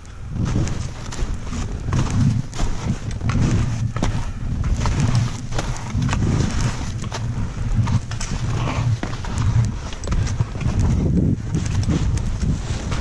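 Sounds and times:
skis swishing through snow: 0.3 - 13.0.

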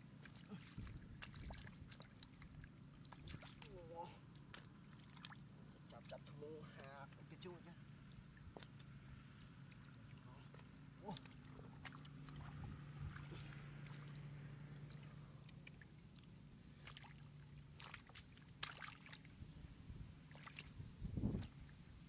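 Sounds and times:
wet squelches in mud: 0.0 - 19.4, 20.2 - 21.7
faint low hum: 0.0 - 22.0
sharp wet slaps: 0.2 - 3.8, 4.4 - 6.1, 8.4 - 9.0, 9.6 - 19.3, 20.3 - 21.6.

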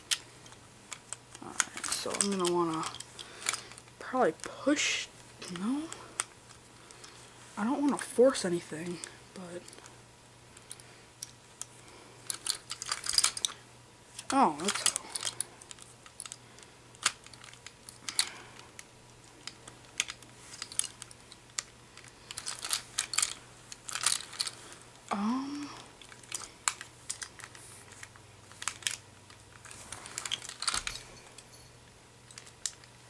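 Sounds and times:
plastic and metal parts clicking: 0.1 - 3.9, 12.2 - 13.6, 14.2 - 24.6, 26.0 - 31.5, 32.2 - 33.0
person humming: 25.1 - 25.9.

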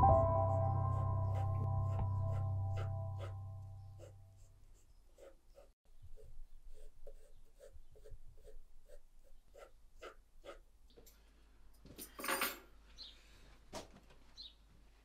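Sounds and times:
pencil scratching on paper: 0.9 - 10.7.

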